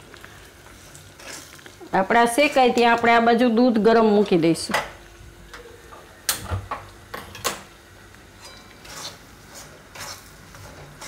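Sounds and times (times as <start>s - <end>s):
metal spatula scraping metal pan: 8.4s - 11.0s.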